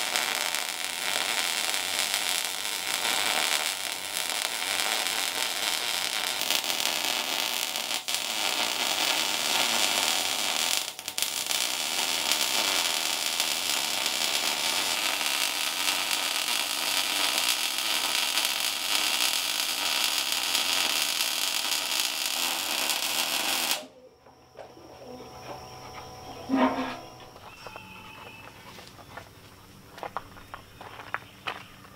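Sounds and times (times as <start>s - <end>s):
welding arc hissing: 0.0s - 23.9s.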